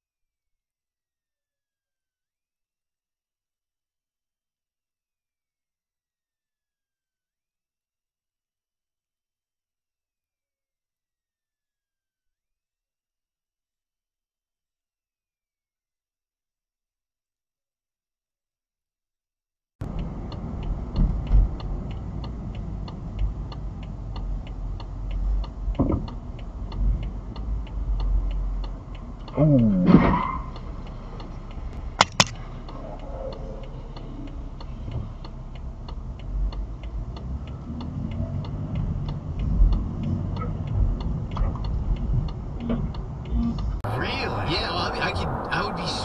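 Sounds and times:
steady ticking: 19.8s - 29.7s, 30.4s - 45.9s
road and engine rumble: 19.8s - 46.0s.

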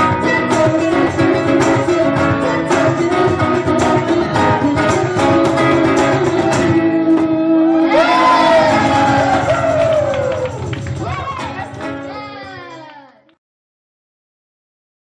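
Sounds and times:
group singing: 0.0s - 9.6s
acoustic guitar strumming: 0.0s - 12.8s.

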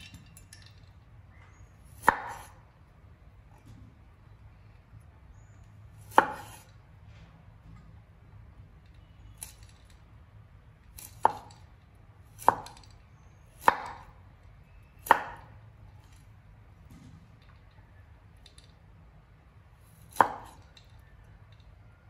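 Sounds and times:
cleaver chopping on wooden board: 2.0s - 2.5s, 6.1s - 6.6s, 13.6s - 14.0s, 15.0s - 15.5s.

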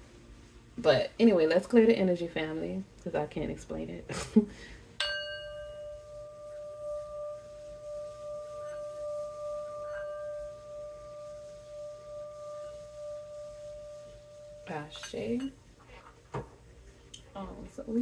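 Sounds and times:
singing bowl ringing: 5.0s - 15.6s.

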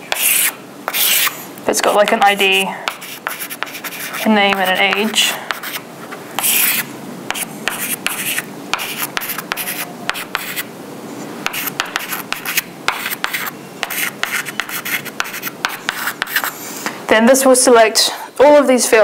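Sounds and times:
chalk scratching on chalkboard: 0.1s - 1.4s, 2.0s - 5.8s, 6.4s - 10.7s, 11.4s - 16.6s.

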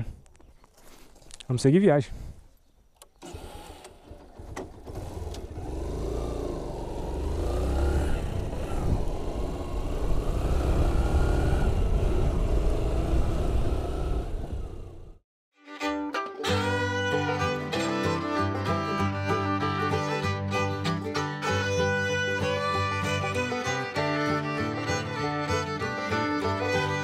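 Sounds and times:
motorcycle engine accelerating: 3.3s - 15.2s
wind rumble on microphone: 8.1s - 15.2s.

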